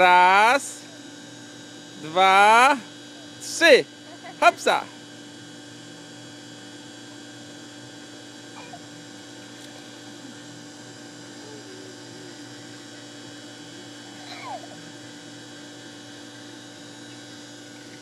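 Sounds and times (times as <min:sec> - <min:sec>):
low mains hum: 0:00.0 - 0:18.0.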